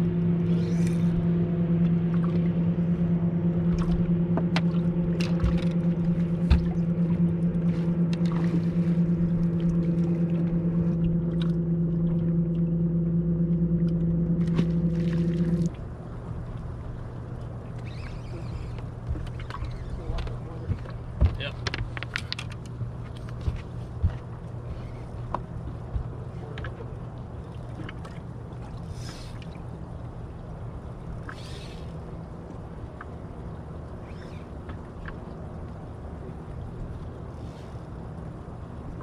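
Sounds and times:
electric trolling motor humming: 0.0 - 20.1.

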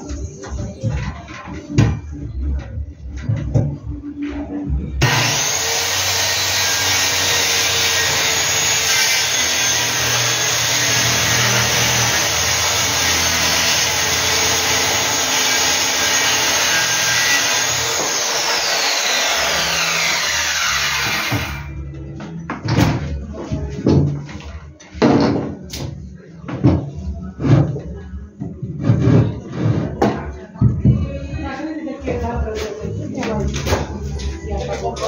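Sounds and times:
circular saw cutting wood: 5.0 - 21.8.

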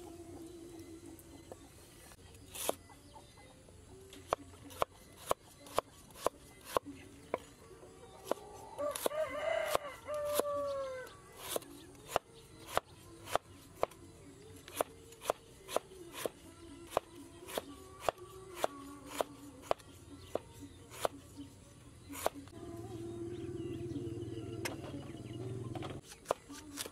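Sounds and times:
rooster crowing: 8.7 - 11.2
cleaver chopping on wooden board: 22.1 - 22.4.

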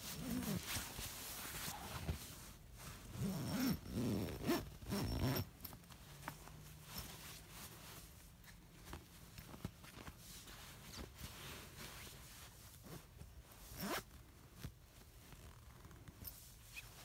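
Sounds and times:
zipper being pulled closed: 0.1 - 1.0, 3.1 - 5.8, 13.7 - 14.1.

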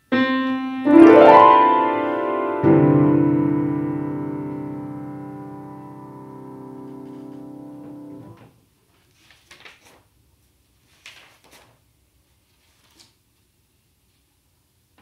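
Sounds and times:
piano chord: 0.1 - 8.4
sheet music pages rustling: 6.7 - 13.5.

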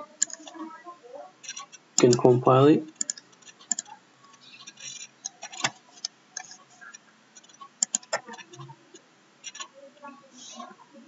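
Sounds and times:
computer mouse clicks: 0.2 - 0.6, 3.0 - 9.7.

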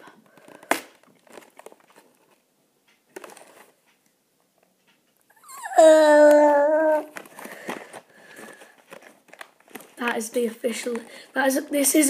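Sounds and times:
cardboard packaging rustling: 0.3 - 2.4, 3.1 - 3.8, 6.3 - 12.0
boy wailing: 5.4 - 7.1.

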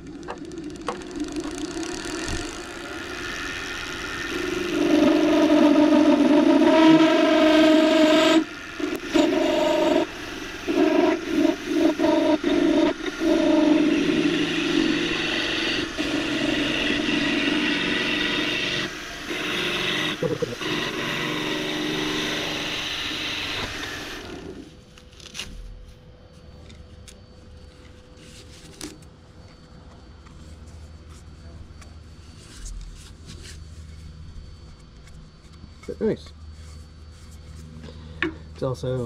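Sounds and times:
lathe motor hum: 0.0 - 24.9
lathe gouge cutting hiss: 1.6 - 24.7.

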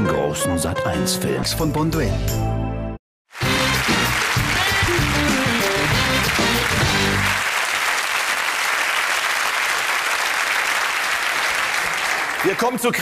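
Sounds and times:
studio audience applause: 3.3 - 13.0.

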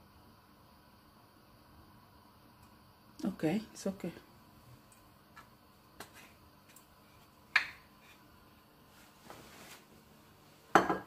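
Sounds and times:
soft rustle: 8.8 - 10.7
glass bottle knocking on counter: 10.7 - 11.0.

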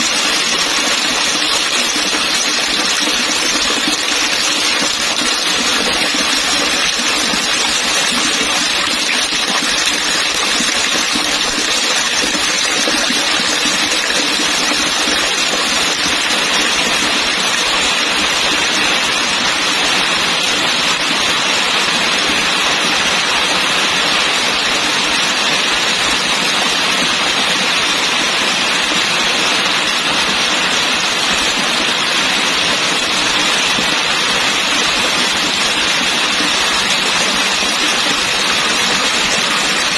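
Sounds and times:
water splashing onto water: 0.0 - 19.8.

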